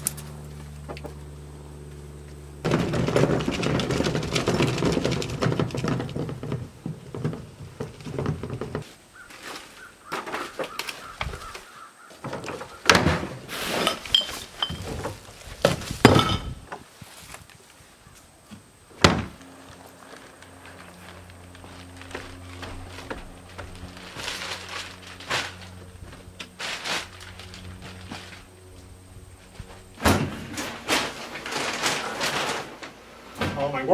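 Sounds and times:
low hum: 0.0s - 8.8s, 18.0s - 33.4s
bin thunks and knocks: 2.6s - 8.8s, 12.2s - 13.4s, 14.7s - 16.6s, 19.0s - 19.4s, 30.0s - 32.5s
trash bin rolling over path: 2.6s - 9.0s, 12.2s - 16.9s, 19.0s - 33.6s.

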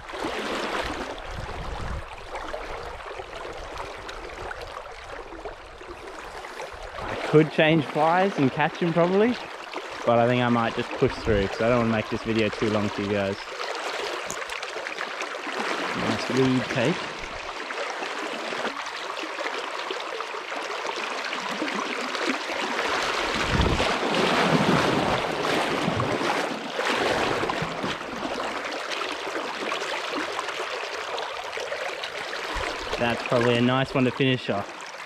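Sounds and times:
wind buffeting microphone: 1.2s - 2.3s, 23.2s - 26.2s.

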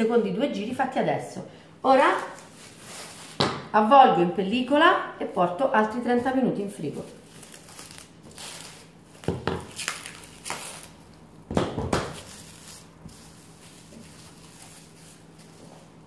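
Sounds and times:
cling film crinkling: 7.0s - 11.3s, 12.3s - 16.0s.

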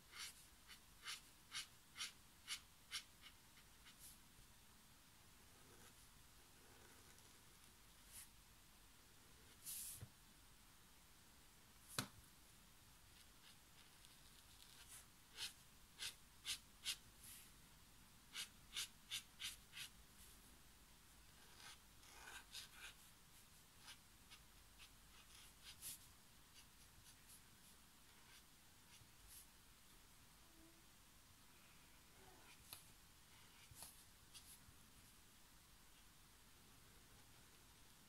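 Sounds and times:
marker strokes on paper: 0.1s - 4.2s, 9.5s - 10.1s, 13.1s - 17.5s, 18.3s - 20.4s, 21.3s - 29.5s, 32.4s - 34.6s.

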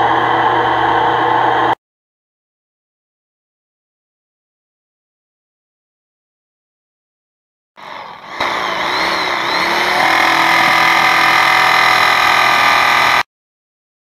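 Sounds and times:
jigsaw cutting sheet metal: 7.8s - 13.3s.

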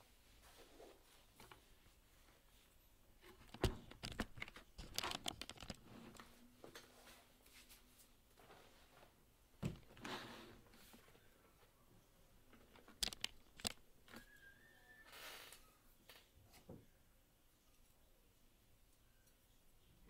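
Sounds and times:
clicks and crinkling: 3.2s - 6.8s, 12.5s - 14.3s.

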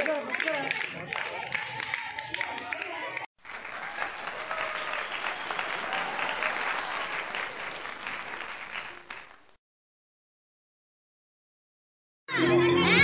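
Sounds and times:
crowd applauding: 0.0s - 9.6s.

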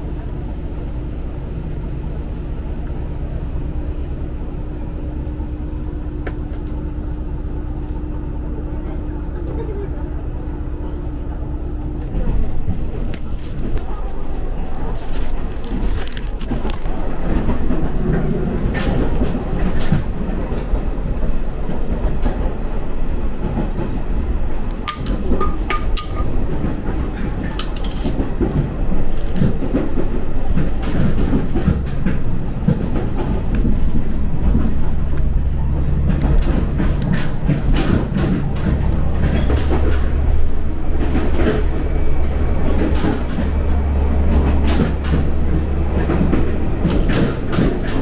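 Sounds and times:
railcar cabin rumble: 0.0s - 48.0s
wheels clicking over track: 23.3s - 48.0s.

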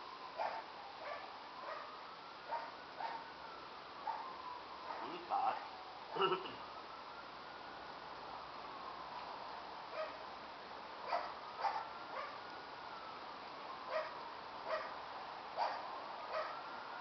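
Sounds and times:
young dog yipping: 11.1s - 12.4s.

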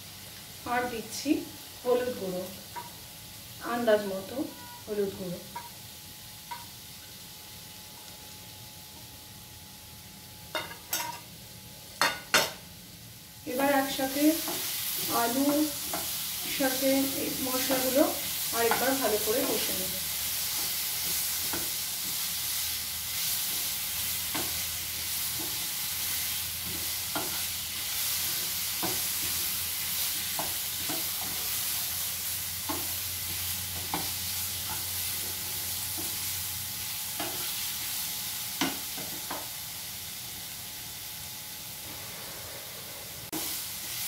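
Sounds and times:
potatoes sizzling in a frying pan: 0.0s - 44.0s
spatula tapping pan: 5.6s - 5.8s, 32.6s - 34.9s.

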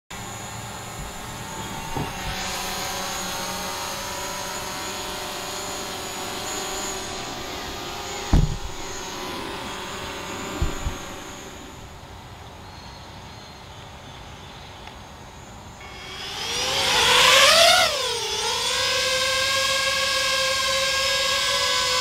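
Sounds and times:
drone propellers humming: 0.2s - 12.3s, 15.8s - 22.0s
loud low thumps: 6.5s - 11.6s.

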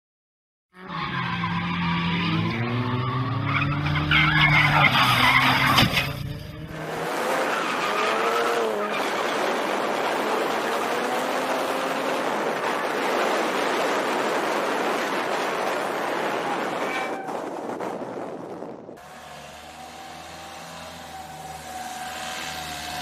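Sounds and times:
car engine: 0.8s - 23.0s
tyres sliding and spinning: 3.5s - 17.7s.

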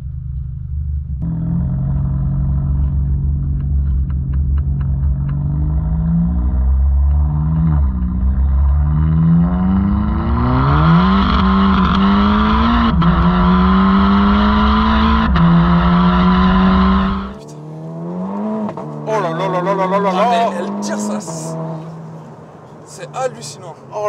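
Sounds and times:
exhaust cracks on upshifts: 0.0s - 23.2s
car engine at full throttle: 0.0s - 23.4s.

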